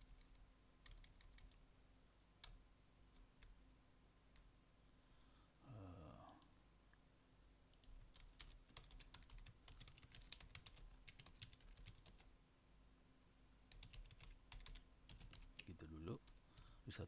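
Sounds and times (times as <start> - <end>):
faint keyboard typing: 0.0 - 1.7, 2.4 - 3.6, 4.3 - 4.5, 6.2 - 6.6, 7.7 - 12.4, 13.7 - 17.0.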